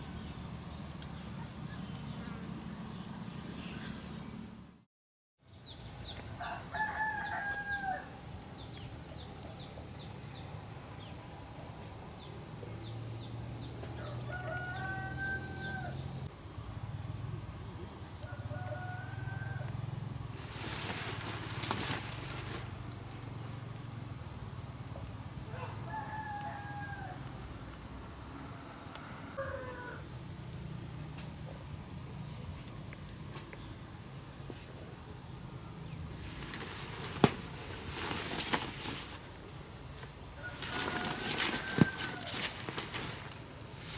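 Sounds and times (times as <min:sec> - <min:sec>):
roosters crowing: 0:06.3 - 0:08.4, 0:13.3 - 0:16.3, 0:18.1 - 0:22.8, 0:25.5 - 0:27.4, 0:28.3 - 0:30.2, 0:40.2 - 0:43.9.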